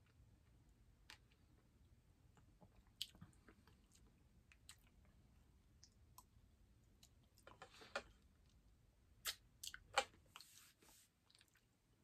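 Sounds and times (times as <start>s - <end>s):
chewing and mouth sounds: 2.3s - 6.3s.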